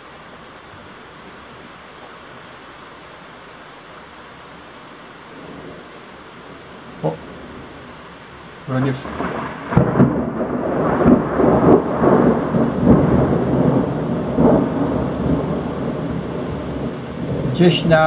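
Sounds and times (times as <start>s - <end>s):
heavy rain hiss: 0.0s - 18.0s
thunder cracking and rumbling: 8.7s - 18.0s.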